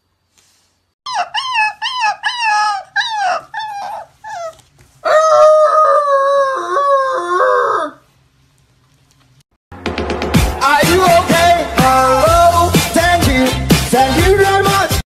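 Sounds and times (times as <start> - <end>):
puppy howling: 1.1 - 8.0.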